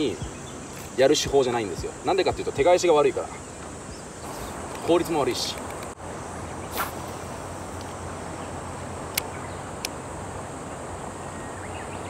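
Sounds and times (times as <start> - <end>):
wind: 0.0 - 12.0
moving water: 3.2 - 12.0.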